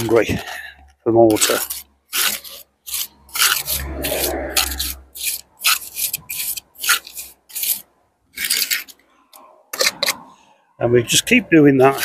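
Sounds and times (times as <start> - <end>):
trowel scraping mortar: 1.3 - 9.0, 9.7 - 10.3, 11.1 - 12.0.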